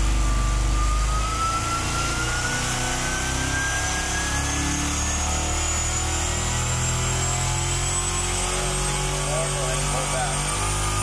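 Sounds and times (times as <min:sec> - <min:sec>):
engine revving on a dynamometer: 0:00.0 - 0:11.0.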